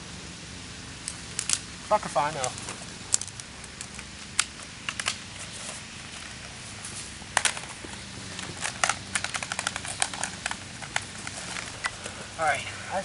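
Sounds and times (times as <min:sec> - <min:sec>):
faint steady hum: 0:00.0 - 0:13.0
sharp clicks and snaps: 0:01.0 - 0:01.6, 0:02.3 - 0:05.2, 0:08.4 - 0:12.0.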